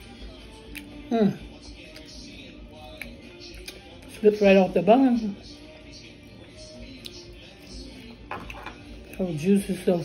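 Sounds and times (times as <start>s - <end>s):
soft background music: 0.0s - 10.0s.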